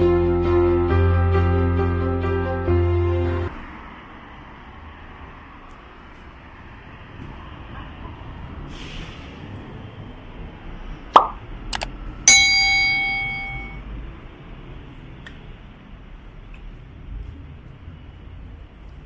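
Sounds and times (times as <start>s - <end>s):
street background: 0.0s - 19.0s
bright metallic ding: 12.3s - 13.8s.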